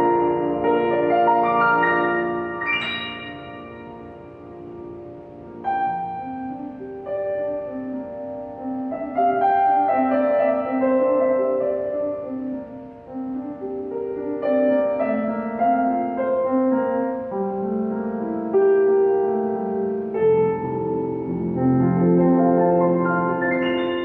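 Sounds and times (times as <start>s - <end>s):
piano playing: 0.0s - 24.0s.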